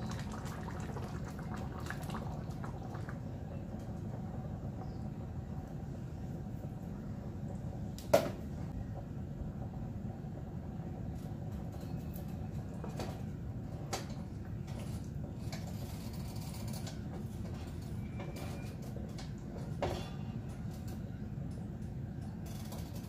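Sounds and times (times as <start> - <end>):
steady low background noise: 0.0 - 15.6.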